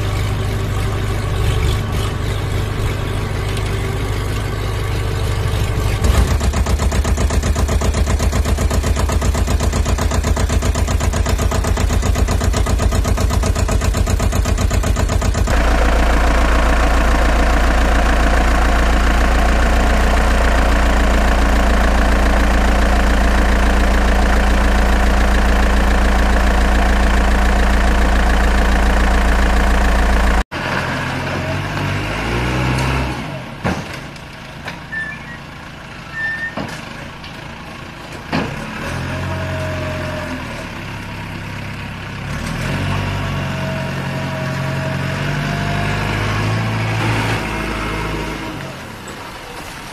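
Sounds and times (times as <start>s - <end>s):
engine idling with chugging: 0.0s - 30.4s
deeper smoother engine sound: 0.0s - 33.6s.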